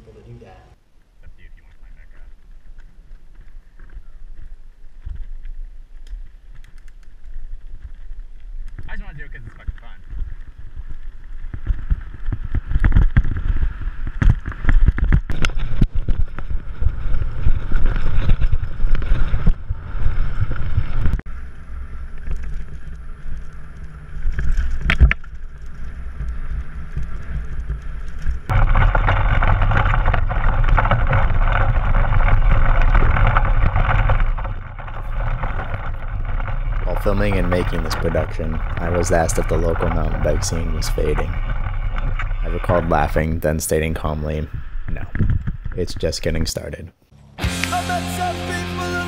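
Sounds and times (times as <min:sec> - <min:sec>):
bike knocks and rattles: 0:10.0 - 0:21.2.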